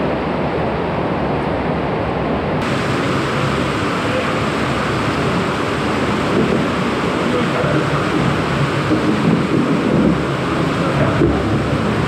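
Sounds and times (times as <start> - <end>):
water rushing through culvert: 2.6 - 12.0.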